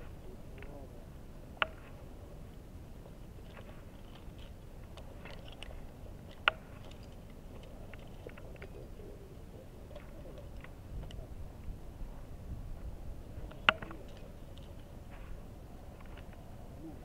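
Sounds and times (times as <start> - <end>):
low steady rumble: 0.0 - 17.0
climbing gear clicks and scrapes: 3.4 - 8.8.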